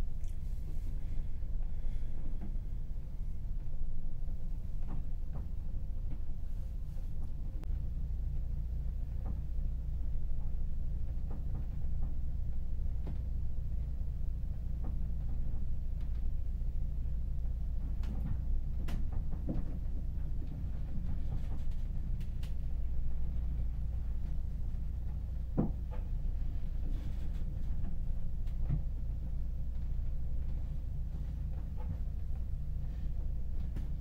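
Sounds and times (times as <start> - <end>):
faint clicks and creaks: 0.0 - 3.8, 17.4 - 34.0.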